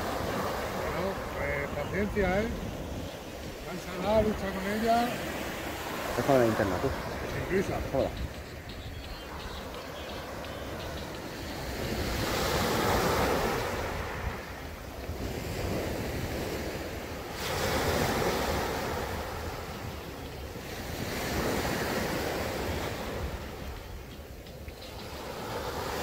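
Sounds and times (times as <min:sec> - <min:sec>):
low wind rumble on microphone: 0:00.0 - 0:05.4
sea waves breaking on shore: 0:00.0 - 0:26.0.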